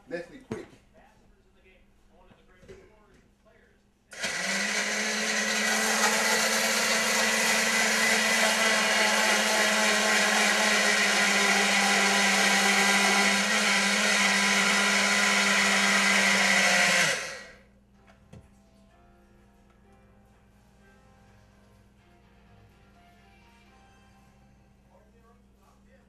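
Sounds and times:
electric blender running: 4.1 - 17.6.

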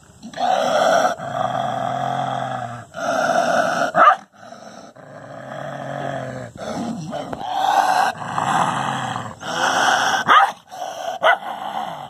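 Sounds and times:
dog growling: 0.2 - 12.0.

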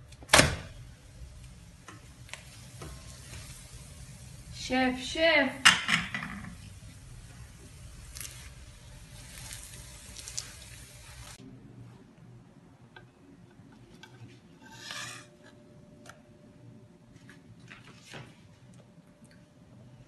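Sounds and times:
gas burner hum: 0.0 - 16.8
pastry sizzling in a pan: 0.7 - 11.4
crisp pastry rustle: 7.8 - 11.4.

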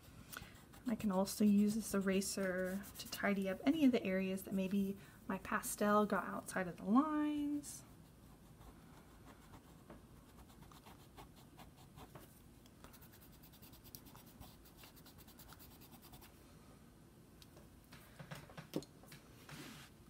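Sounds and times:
eraser scratching on paper: 0.6 - 3.5.

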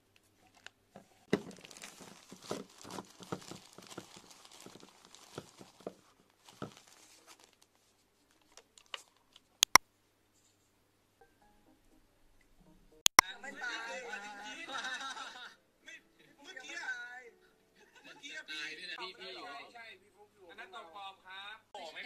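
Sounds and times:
plastic crinkling and rustling: 0.4 - 9.5.

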